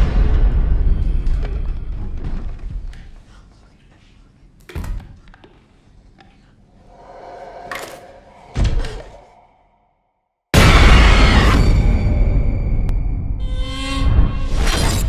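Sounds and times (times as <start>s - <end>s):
swelling tone: 6.8s - 10.3s.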